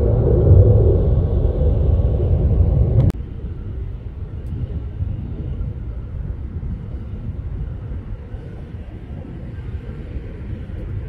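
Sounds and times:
distant jet engine rumble: 0.0s - 11.0s.

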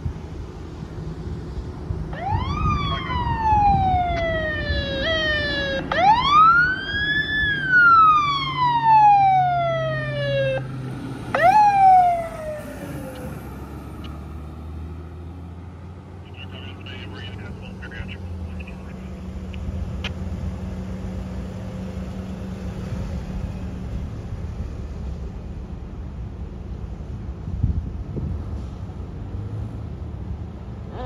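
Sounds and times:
emergency vehicle siren: 2.1s - 14.5s.

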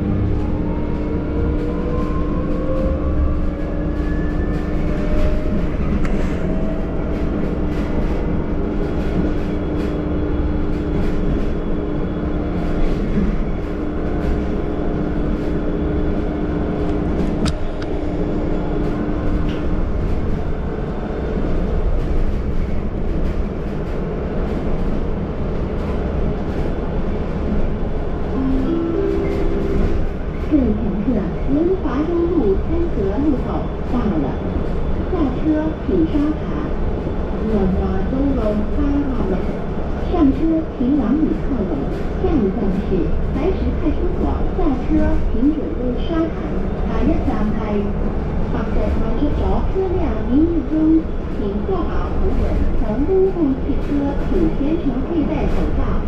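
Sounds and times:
bus road rumble: 0.0s - 56.0s.

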